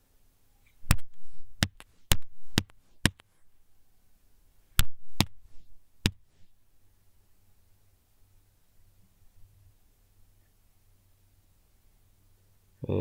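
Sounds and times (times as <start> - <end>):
sharp knocks by hand: 0.8 - 3.3, 4.8 - 5.4, 6.0 - 6.3.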